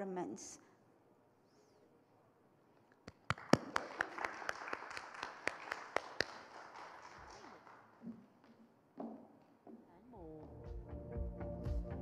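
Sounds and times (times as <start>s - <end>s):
close loud hand claps: 3.0s - 8.6s
audience applauding: 3.2s - 8.0s.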